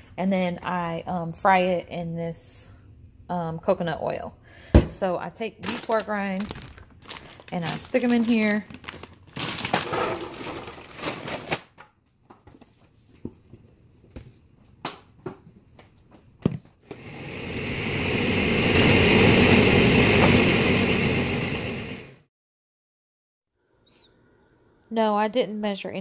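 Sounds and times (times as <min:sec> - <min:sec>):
pork rinds crinkling: 0:05.6 - 0:11.5
blender grinding: 0:16.8 - 0:22.2.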